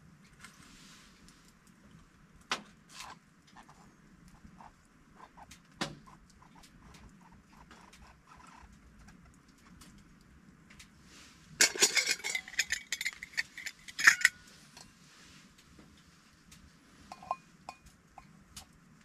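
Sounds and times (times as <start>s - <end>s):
metal mugs clinking and rattling: 11.6s - 14.9s, 17.1s - 18.3s.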